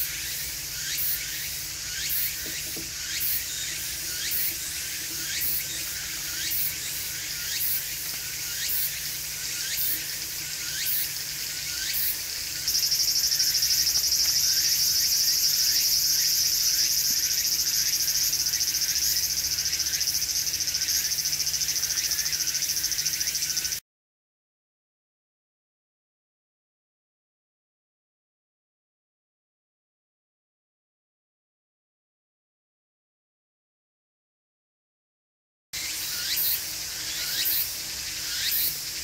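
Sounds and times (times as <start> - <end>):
insect high-pitched pulse: 0.0 - 23.8, 35.8 - 39.0
insect steady high buzz: 0.0 - 23.8, 35.8 - 39.0.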